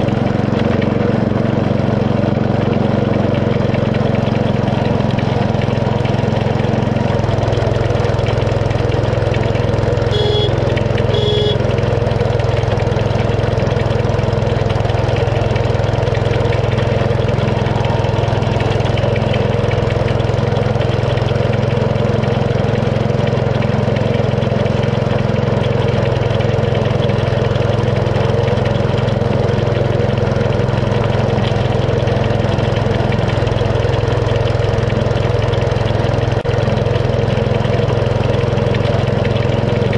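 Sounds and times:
small locomotive engine running: 0.0 - 39.9
short high chirps: 10.1 - 11.6.

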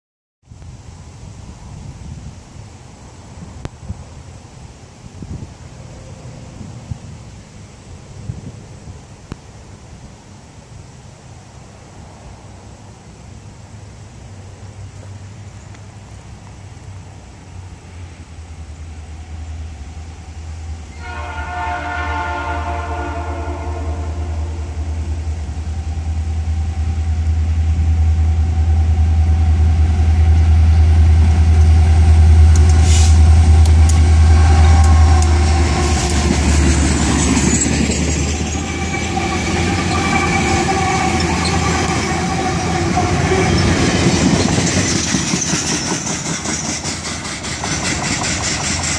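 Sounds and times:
locomotive engine drone: 2.5 - 48.9
locomotive horn: 20.9 - 26.1, 28.2 - 37.4, 38.6 - 44.1
wheels squealing on rail: 28.3 - 48.9
freight cars rolling on steel wheels: 32.5 - 48.9.

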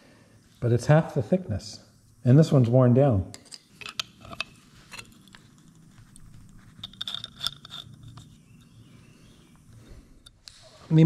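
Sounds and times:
hand tools clicking and scraping: 3.4 - 8.8.

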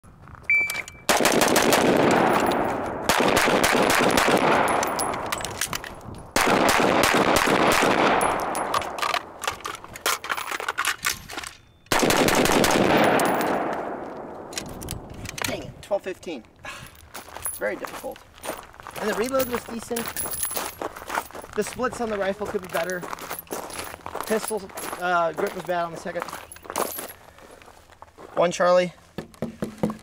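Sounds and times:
shot timer beep: 0.5 - 1.1
rapid gunfire with echo: 1.1 - 5.3, 6.4 - 8.6, 11.9 - 14.1.

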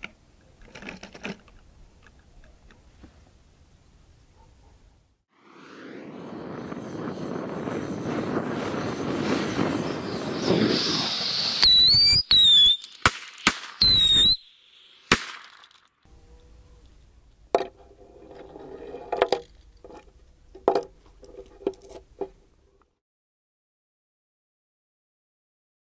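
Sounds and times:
firework rockets whistling: 5.3 - 16.0
gas torch hissing: 5.8 - 13.1, 13.7 - 15.3
firework cracks: 8.2 - 16.0
toy cars knocking on wooden board: 17.5 - 17.8, 19.1 - 22.4.

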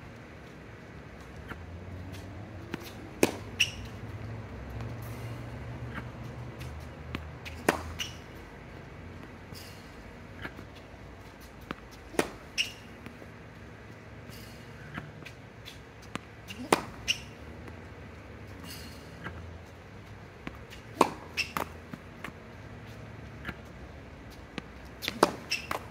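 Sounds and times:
tennis ball bouncing: 1.2 - 5.0, 5.8 - 8.5, 10.2 - 13.4, 14.8 - 17.9, 20.4 - 23.6, 24.3 - 25.9
tennis racket hitting ball: 2.7 - 3.9, 7.5 - 8.2, 11.7 - 13.2, 16.1 - 17.4, 20.5 - 22.0, 25.0 - 25.9.

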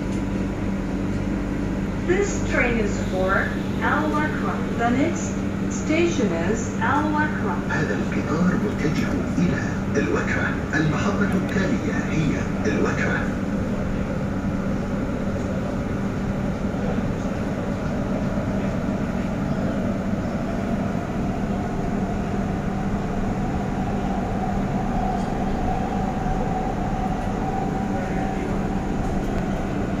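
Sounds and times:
train wheels and motors: 0.0 - 30.0.

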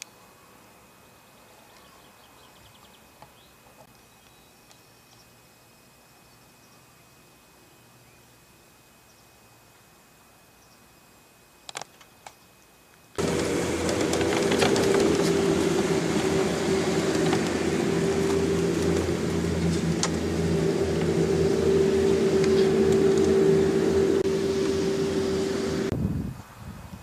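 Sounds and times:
golf cart motor running: 13.2 - 25.9.

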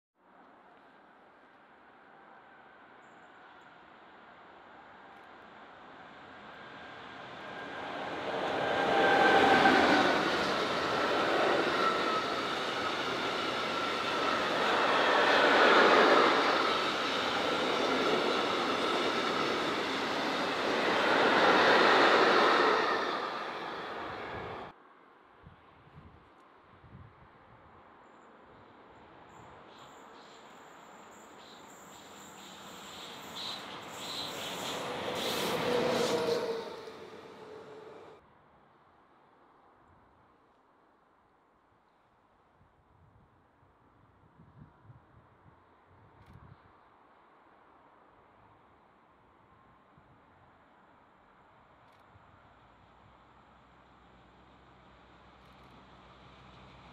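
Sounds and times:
freight train wheels on rails: 5.1 - 24.7, 29.8 - 38.2
high-pitched rail hiss: 29.3 - 38.2.

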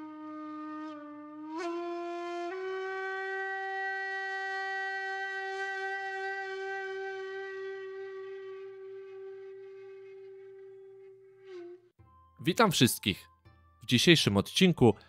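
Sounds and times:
horn-like wind instrument note: 0.0 - 11.9.

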